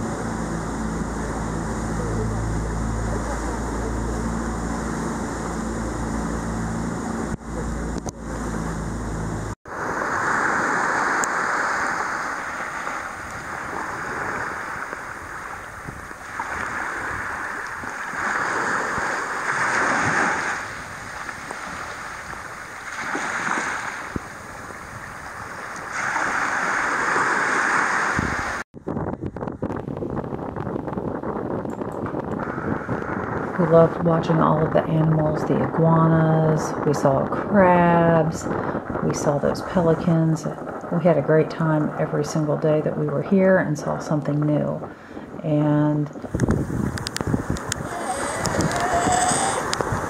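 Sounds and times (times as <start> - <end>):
outboard motor running: 0.0 - 9.9, 46.3 - 50.0
water rushing past: 0.0 - 28.6, 46.1 - 50.0
wind on microphone: 0.0 - 50.0
surf breaking on rocks: 9.7 - 28.6, 46.2 - 50.0.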